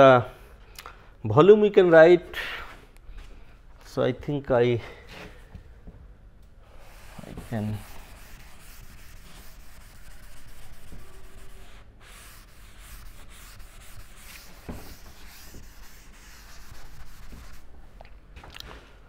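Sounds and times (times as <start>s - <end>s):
duster rubbing on a chalkboard: 6.8s - 17.7s.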